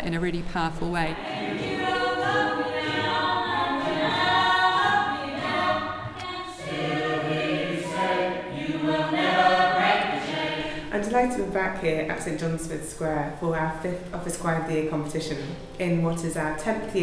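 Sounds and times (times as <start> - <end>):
mixed choir singing: 1.2 - 11.0.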